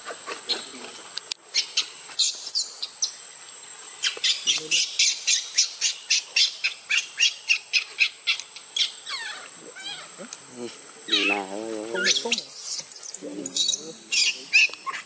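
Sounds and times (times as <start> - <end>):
baby monkey squealing: 8.8 - 10.2, 11.1 - 15.0.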